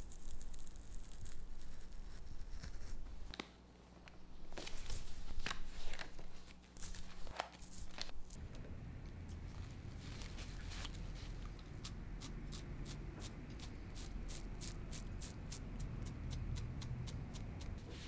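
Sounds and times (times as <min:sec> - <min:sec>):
paper crinkling and rustling: 0:04.5 - 0:08.2.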